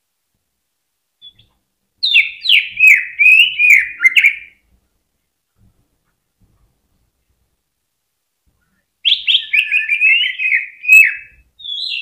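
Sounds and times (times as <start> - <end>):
bird whistling song: 1.2 - 4.6, 9.0 - 12.0.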